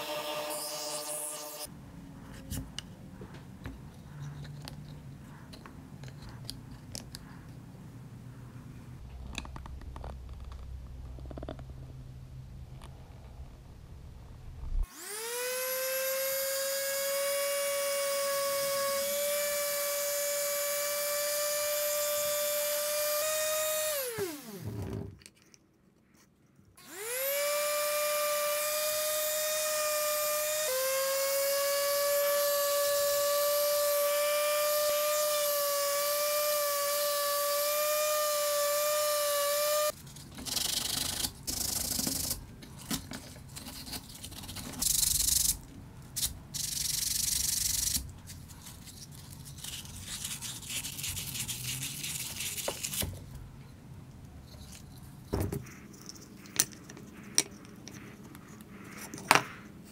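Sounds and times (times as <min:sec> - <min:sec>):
sandpaper rubbing on wood: 0:49.4 - 0:53.0.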